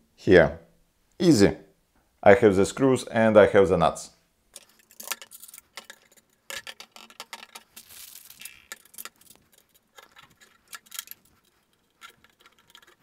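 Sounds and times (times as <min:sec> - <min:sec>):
metal screws and nuts clicking: 0:04.5 - 0:13.0.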